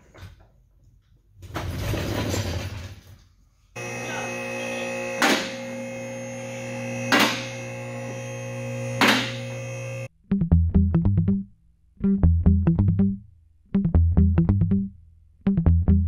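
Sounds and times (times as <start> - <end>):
hydraulic pump motor humming: 3.8 - 10.1.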